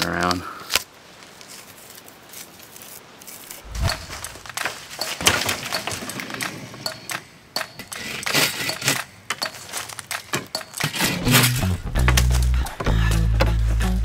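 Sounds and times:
bark tearing from a stick: 1.6 - 4.4
music: 11.2 - 14.0.

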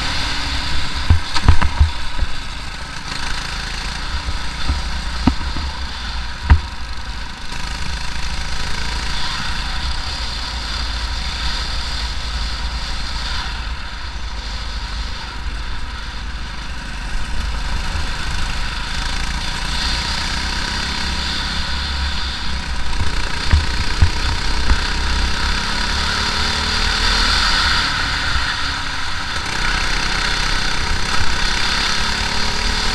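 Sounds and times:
wind rushing over microphone: 0.0 - 7.2
kart engine running: 0.0 - 32.9
sharp knock: 1.0 - 2.3, 4.2 - 7.0, 22.9 - 25.2.

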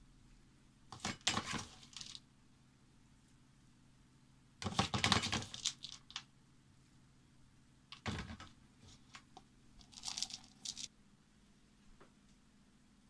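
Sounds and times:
food containers crinkling: 9.8 - 10.9.

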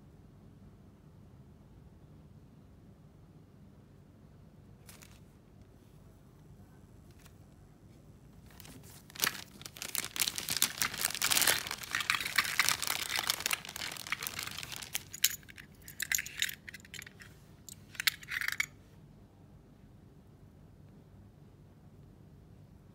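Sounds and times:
plastic bag crinkling: 8.4 - 18.7.

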